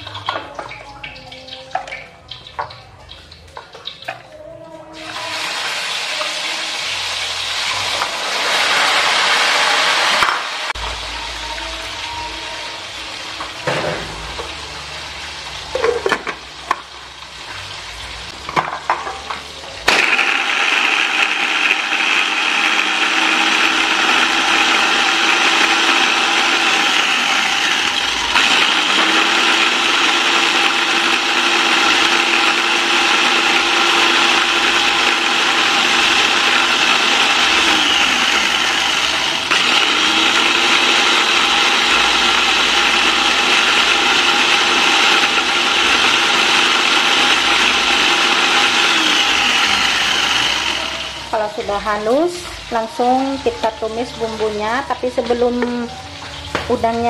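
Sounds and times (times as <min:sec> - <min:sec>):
food chopper motor whining: 0:05.0 - 0:11.0, 0:19.8 - 0:53.0.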